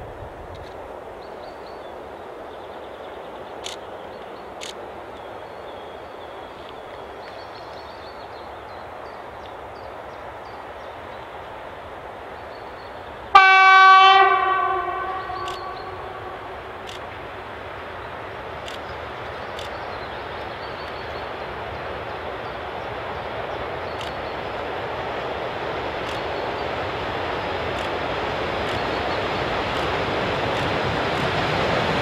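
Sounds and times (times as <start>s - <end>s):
locomotive horn blast: 13.3s - 16.9s.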